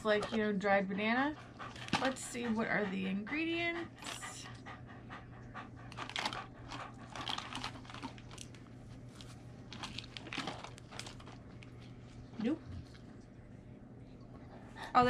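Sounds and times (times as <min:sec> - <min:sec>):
dog panting and sniffing: 0:00.0 - 0:08.3.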